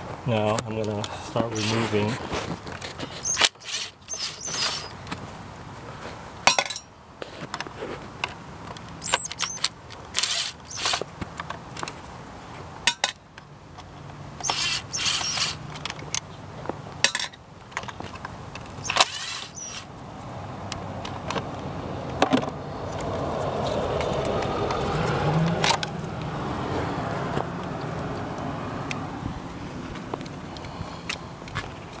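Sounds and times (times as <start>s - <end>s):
scraping: 1.5s - 5.0s
tools clicking and knocking: 6.4s - 6.9s, 7.5s - 11.9s, 12.8s - 16.3s, 17.0s - 19.9s.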